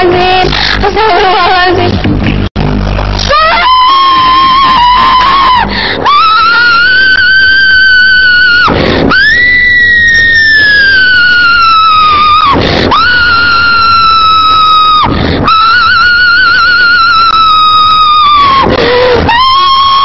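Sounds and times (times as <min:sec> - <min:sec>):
person screaming: 0:03.2 - 0:20.0
person gasping: 0:05.6 - 0:06.0.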